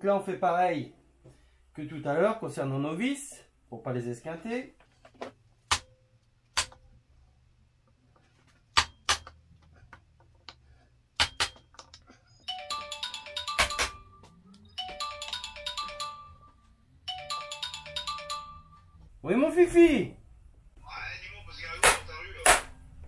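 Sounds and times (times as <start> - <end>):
phone ringtone melody: 12.4 - 19.1.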